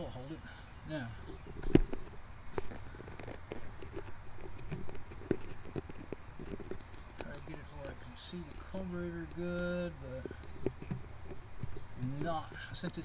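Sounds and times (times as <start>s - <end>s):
camera handling clicks and knocks: 1.4s - 7.2s.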